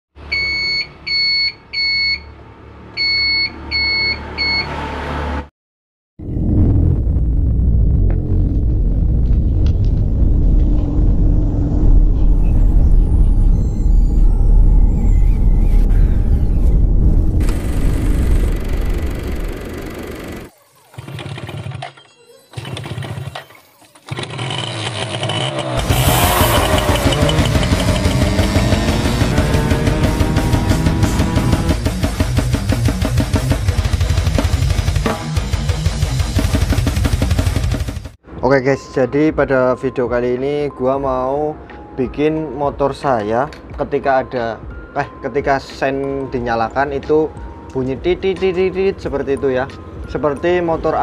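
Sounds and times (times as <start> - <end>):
turn signal flasher beeping: 0.3 - 2.3, 25.8 - 29.1
motorcycle engine running: 17.4 - 20.5, 24.1 - 38.2.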